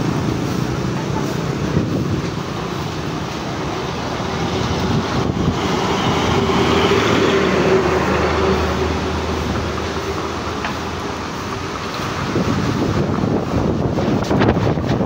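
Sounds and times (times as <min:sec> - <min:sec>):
strong wind on microphone: 0:01.5 - 0:09.8, 0:12.0 - 0:15.0.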